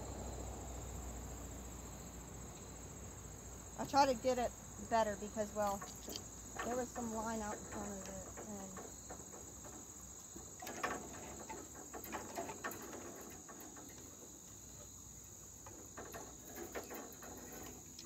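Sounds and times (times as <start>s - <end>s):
crickets chirping: 0.0s - 18.0s.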